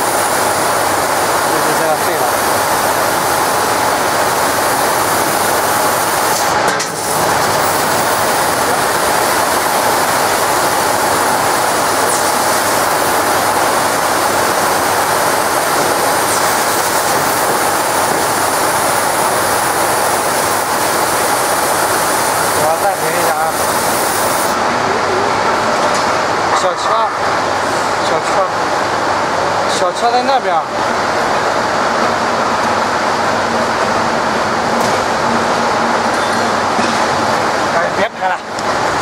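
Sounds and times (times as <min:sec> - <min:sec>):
laser cutter gas hiss: 0:00.0 - 0:24.6.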